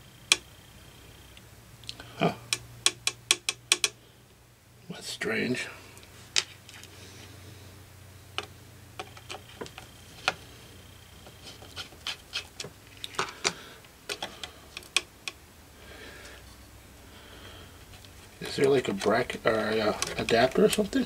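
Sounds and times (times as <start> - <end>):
low steady hum: 0.0 - 21.0
screwdriver and screws clicking: 2.5 - 3.9.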